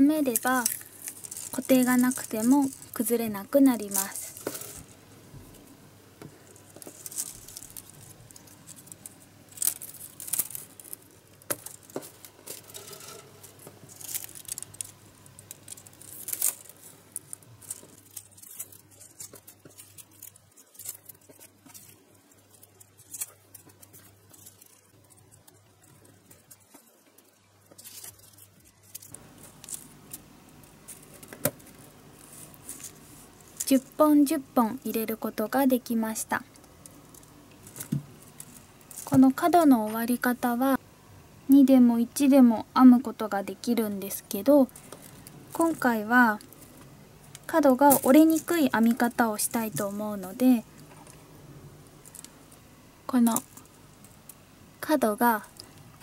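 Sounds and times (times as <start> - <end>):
bamboo strips clicking and scraping: 0.0 - 5.0, 6.2 - 34.0.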